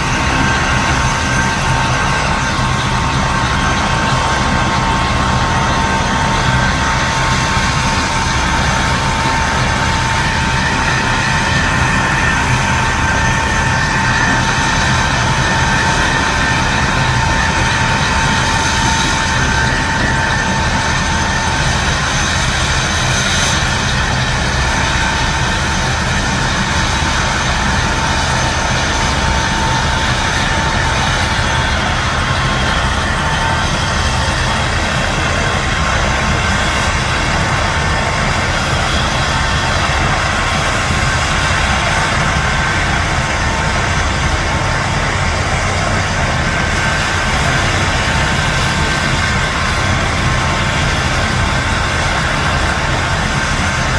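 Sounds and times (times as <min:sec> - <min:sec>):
helicopter turbine engine running: 0:00.0 - 0:53.9.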